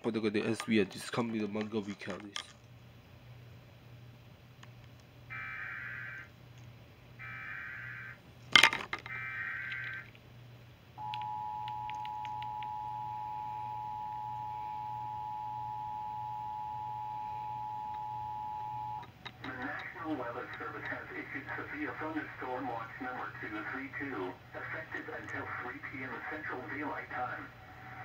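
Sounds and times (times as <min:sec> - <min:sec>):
two-tone attention signal: 0:11.0 - 0:19.6
data tone bursts: 0:11.0 - 0:20.8.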